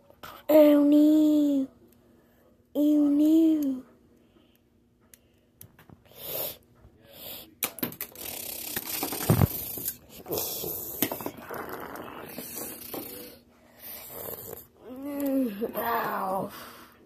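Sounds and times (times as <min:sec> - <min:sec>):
child making hissing mouth sounds: 0:06.1 - 0:07.5, 0:08.2 - 0:11.0.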